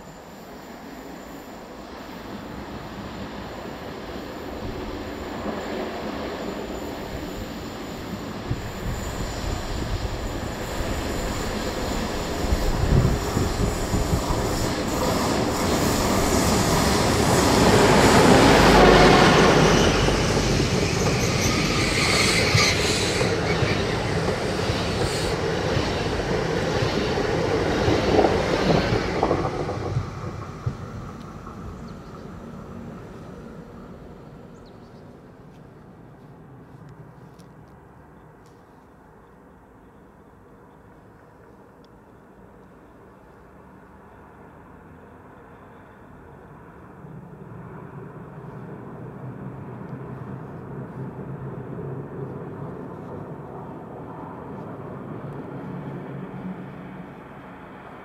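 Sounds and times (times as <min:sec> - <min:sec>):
train passing rumble: 0:00.0 - 0:58.0
high wheel squeal: 0:03.5 - 0:26.0.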